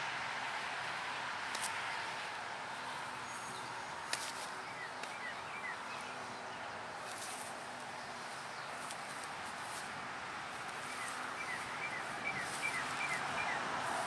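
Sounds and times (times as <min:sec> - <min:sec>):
outdoor background hiss: 0:00.0 - 0:14.0
faint bird chirps: 0:10.8 - 0:13.6.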